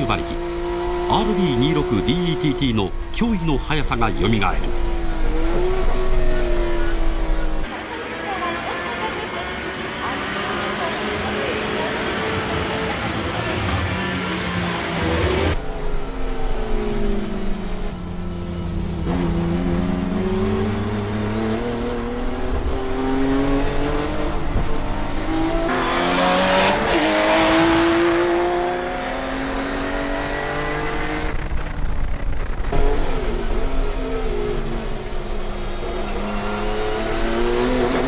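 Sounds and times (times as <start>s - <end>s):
race car engine running hard: 0.0s - 38.0s
rush of noise: 1.2s - 38.0s.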